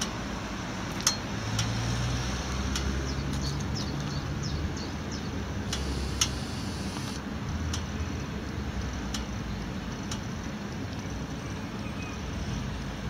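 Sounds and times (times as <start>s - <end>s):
birds chirping: 3.1s - 7.2s
sharp clicks: 5.7s - 7.2s.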